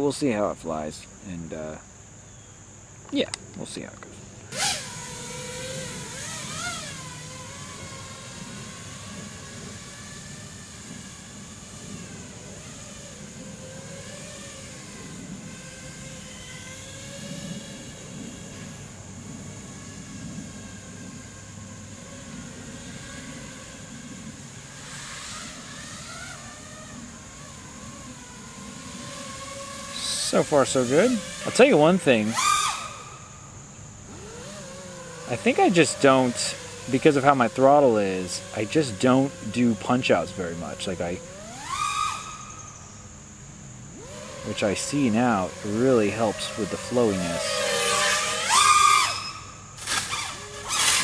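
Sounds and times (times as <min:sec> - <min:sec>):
quadcopter propellers whining: 0:03.1 - 0:51.0.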